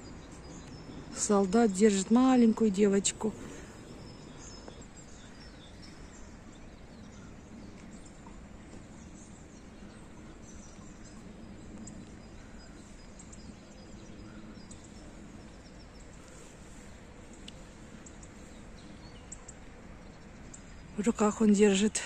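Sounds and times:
low outdoor hum and hiss: 0:00.0 - 0:22.0.

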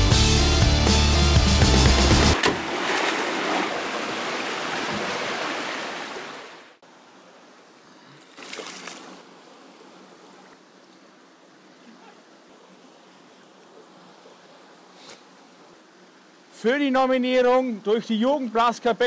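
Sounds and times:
stream water splashing: 0:01.9 - 0:19.0
stream trickling: 0:02.4 - 0:19.0.

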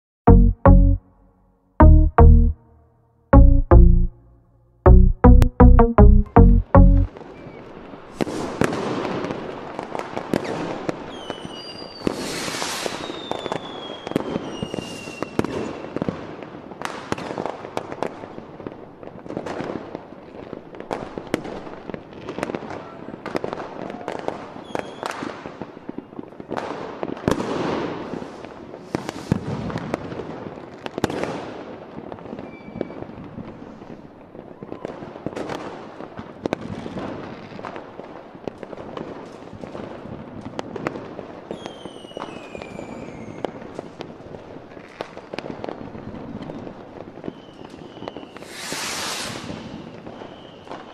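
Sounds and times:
fireworks bursting: 0:08.1 - 0:18.2, 0:26.6 - 0:31.5, 0:47.2 - 0:50.9
fireworks whistles falling in pitch: 0:10.4 - 0:16.1, 0:41.5 - 0:43.6, 0:47.2 - 0:50.9.

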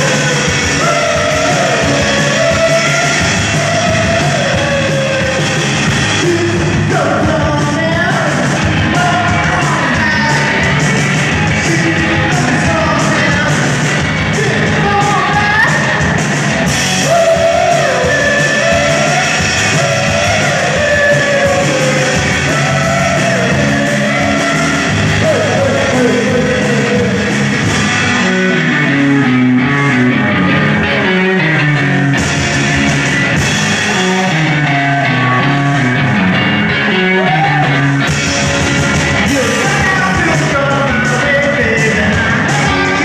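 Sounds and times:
man singing: 0:00.0 - 0:10.8, 0:11.4 - 0:16.0, 0:17.0 - 0:29.3, 0:39.2 - 0:43.0
bass guitar: 0:00.0 - 0:43.0
drum kit: 0:00.0 - 0:43.0
electric guitar: 0:00.0 - 0:43.0.

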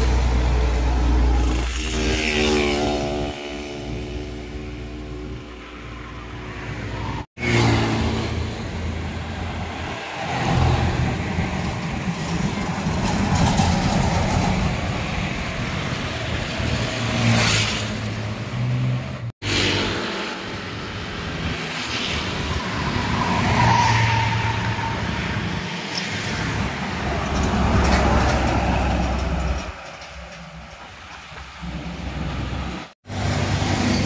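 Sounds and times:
trucks passing: 0:00.0 - 0:34.0
motorcycle passing: 0:01.1 - 0:05.6
car passing: 0:05.6 - 0:11.5.

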